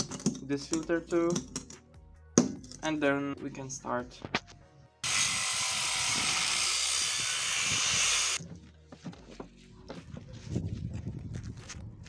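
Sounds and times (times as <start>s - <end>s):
angle grinder cutting steel: 5.0s - 8.4s
rustling: 8.5s - 12.0s.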